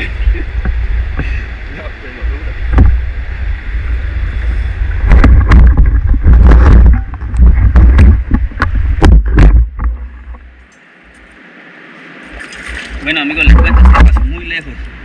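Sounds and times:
wind rumble on camera: 0.0s - 15.0s
knocks and scrapes: 5.0s - 10.6s, 12.3s - 14.5s
water splashing: 11.8s - 15.0s.

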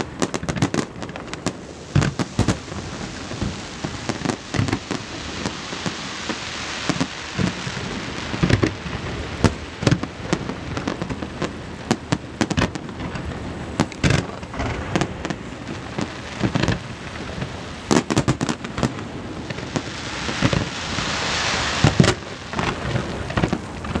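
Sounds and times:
fireworks crackling and banging: 0.0s - 24.0s
rushing hiss: 0.0s - 24.0s.

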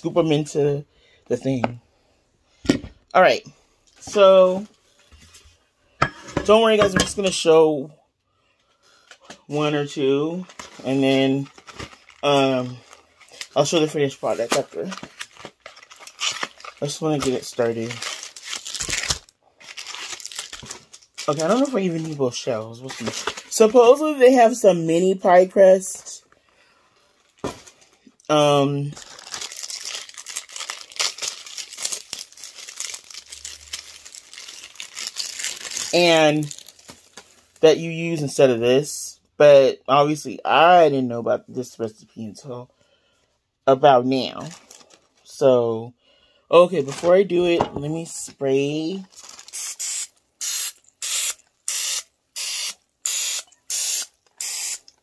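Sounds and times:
plastic wrapper crinkling: 9.0s - 24.6s, 27.0s - 28.2s, 28.8s - 37.9s, 44.2s - 45.4s, 46.6s - 52.0s
cooking spray hissing: 49.6s - 54.8s.

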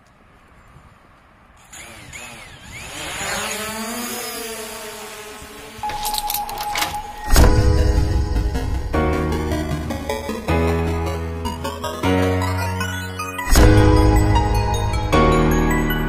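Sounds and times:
drone propellers whining: 1.6s - 10.9s
background music: 5.9s - 16.0s.

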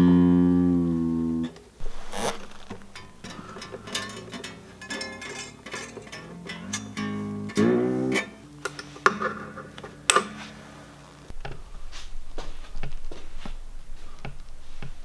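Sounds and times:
acoustic guitar string plucked: 0.0s - 10.6s
handling noise rumbling and bumping: 1.6s - 15.0s.

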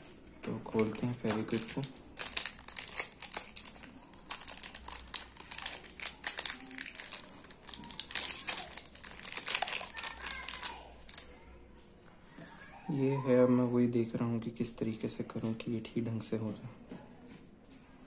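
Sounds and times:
plastic packaging crinkling: 0.0s - 11.4s.

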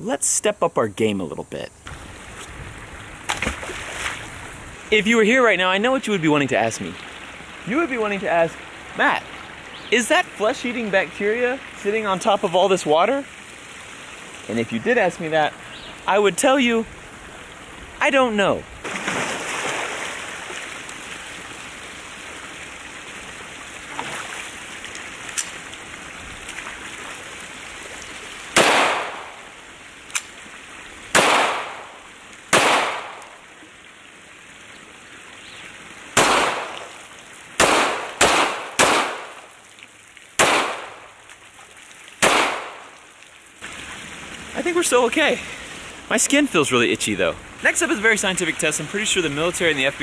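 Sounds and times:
water running over a weir: 1.8s - 50.0s
pistol shots: 28.6s - 29.4s, 31.1s - 31.9s, 32.5s - 33.2s, 36.2s - 36.9s, 37.6s - 39.4s, 40.4s - 41.0s, 42.2s - 42.8s.

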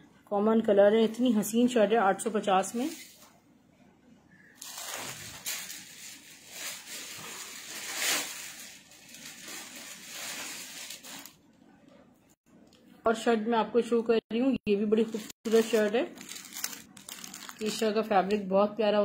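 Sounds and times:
plastic wrapping crinkling: 4.6s - 11.4s, 15.0s - 18.1s.

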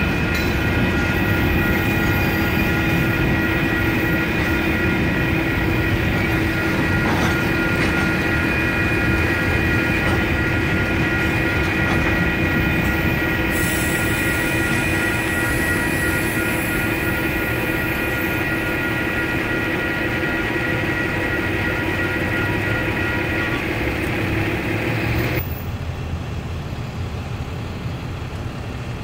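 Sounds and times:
electronic crossing bells ringing: 0.0s - 25.4s
freight train rumble: 0.0s - 29.0s.

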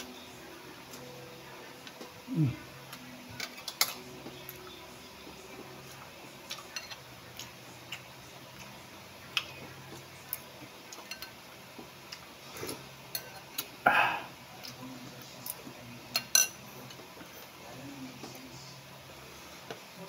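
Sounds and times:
metal spoon clinking on dishes: 6.5s - 7.5s, 10.9s - 11.4s, 13.1s - 13.7s, 16.1s - 17.0s.

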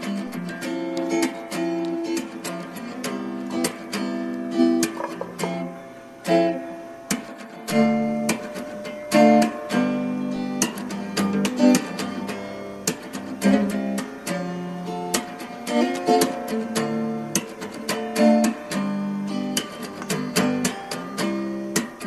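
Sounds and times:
plucked string music: 0.0s - 22.0s.

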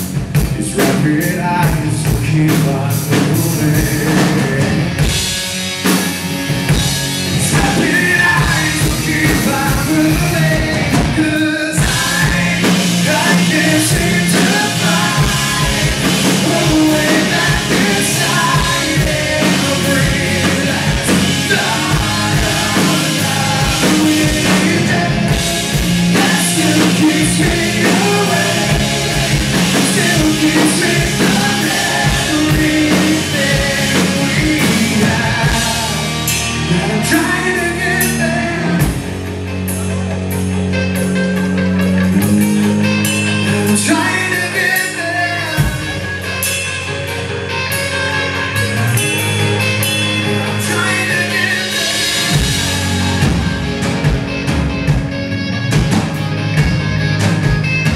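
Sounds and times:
man singing: 0.0s - 5.3s, 6.7s - 39.3s, 43.4s - 53.9s
rock band playing: 0.0s - 57.9s.

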